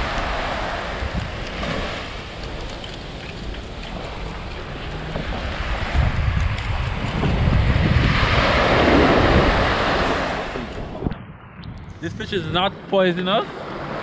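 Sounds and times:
surf breaking on beach: 0.0 - 11.1
wind buffeting microphone: 0.0 - 14.0.

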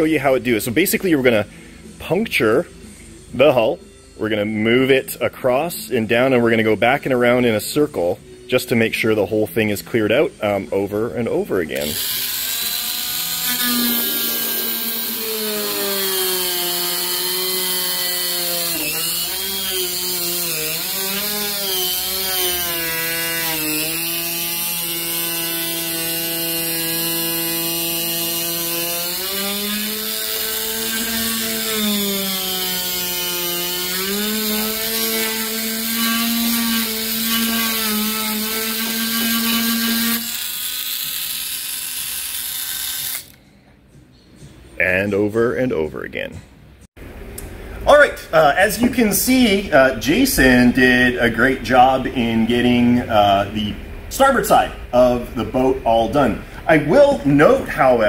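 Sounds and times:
rotary tool whining: 11.8 - 43.4.

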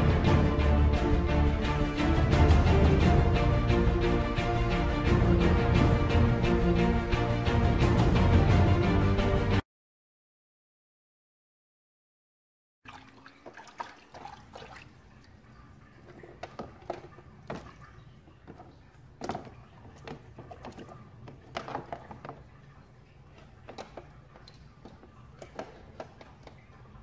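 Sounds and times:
water splashing in plastic tub: 12.8 - 27.0
small knocks: 16.0 - 27.0.

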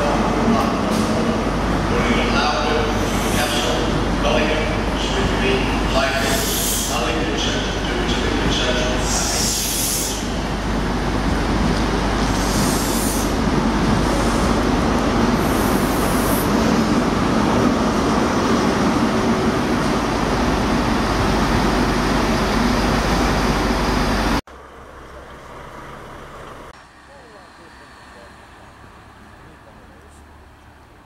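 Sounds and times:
diesel train rumble: 0.0 - 31.0
short hissing bursts: 6.2 - 7.0, 12.3 - 13.3.

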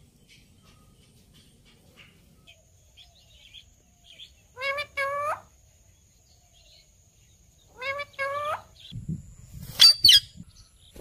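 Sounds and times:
parakeet calling: 4.2 - 5.5, 7.7 - 8.9.

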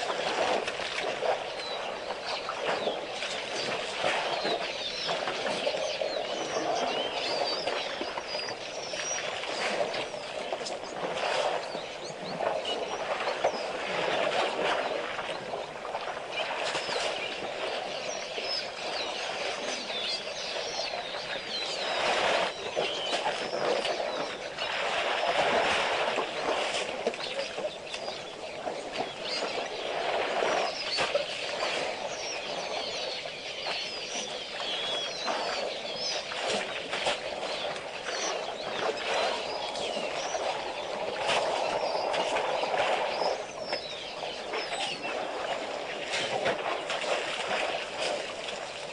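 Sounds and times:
elephants splashing in mud and water: 0.0 - 48.9
small birds chirping: 1.2 - 14.0, 14.6 - 48.9.

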